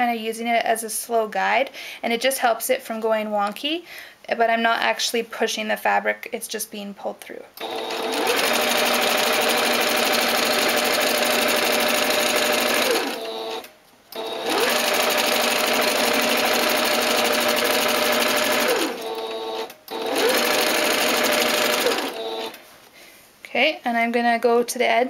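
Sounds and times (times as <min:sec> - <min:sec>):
sewing machine stitching: 0:07.6 - 0:22.6.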